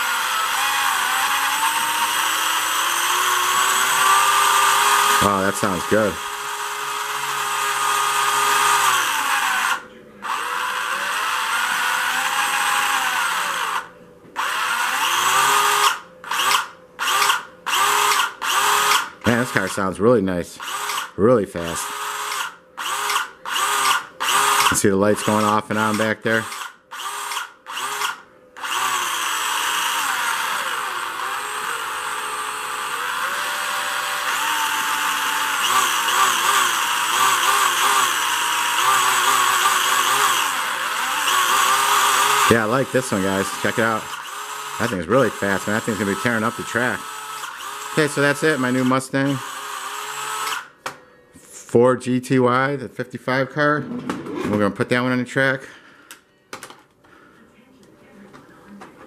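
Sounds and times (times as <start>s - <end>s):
slot car electric motor whining: 0.0s - 19.6s, 20.6s - 50.8s
person talking: 5.2s - 6.2s, 19.2s - 20.6s, 21.2s - 22.0s, 24.7s - 26.5s, 42.4s - 44.2s, 44.8s - 47.1s, 47.9s - 49.5s, 51.4s - 55.7s.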